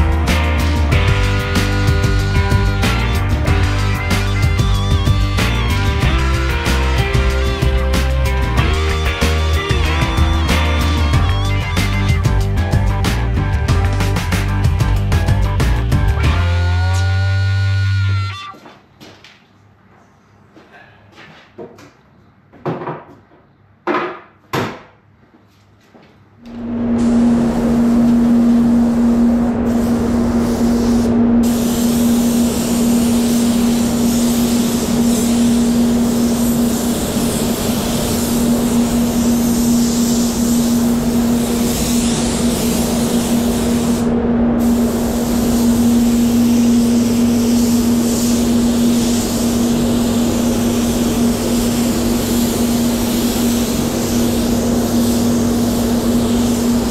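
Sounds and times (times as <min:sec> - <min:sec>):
steady low hum: 0:26.4 - 0:56.9
spray gun hissing: 0:27.0 - 0:56.9.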